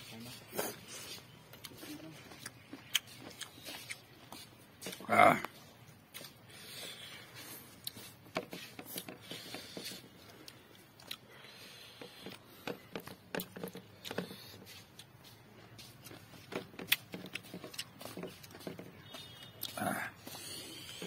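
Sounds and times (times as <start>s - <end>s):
chewing and lip smacks: 0.6s - 8.2s, 9.9s - 11.3s, 16.8s - 21.0s.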